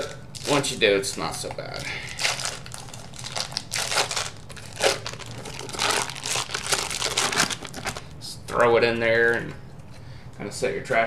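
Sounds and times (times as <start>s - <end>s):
foil wrapper crinkling: 0.4s - 8.1s.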